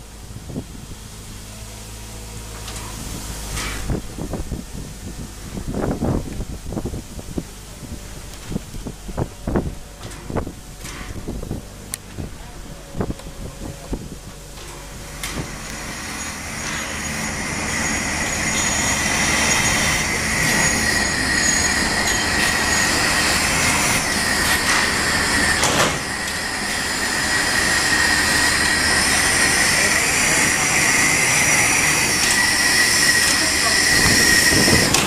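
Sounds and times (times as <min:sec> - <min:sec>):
steam hissing: 0:00.0 - 0:12.4, 0:13.0 - 0:35.0
high-pitched squeal: 0:12.8 - 0:35.0.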